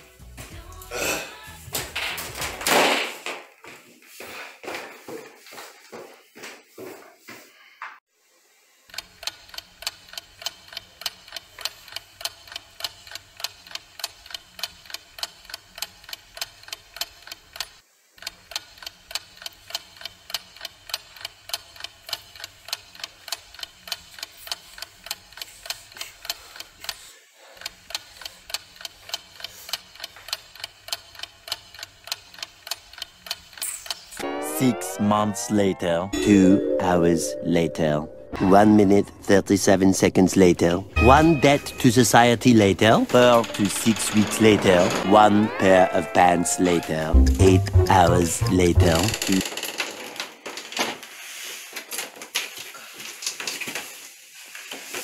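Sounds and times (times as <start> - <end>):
clock ticking: 47.0 - 49.4.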